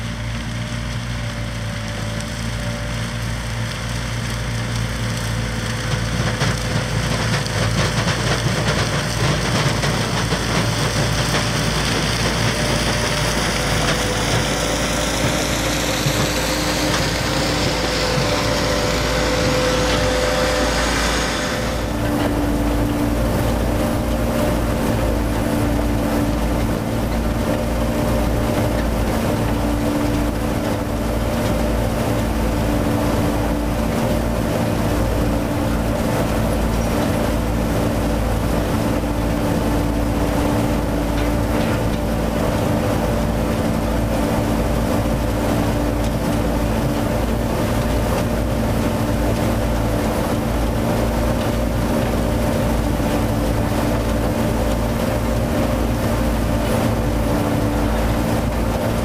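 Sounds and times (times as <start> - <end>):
low rumble: 6.6 - 39.6
machine hum: 8.4 - 59.0.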